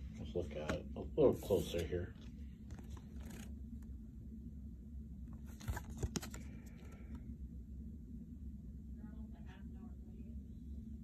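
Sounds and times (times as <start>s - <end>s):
steady low hum: 0.0s - 11.0s
trading cards scraping and clicking: 2.7s - 3.5s, 5.5s - 6.9s.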